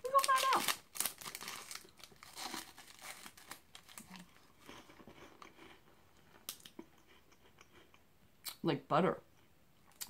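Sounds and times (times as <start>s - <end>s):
plastic wrapper crinkling and tearing: 0.0s - 4.5s.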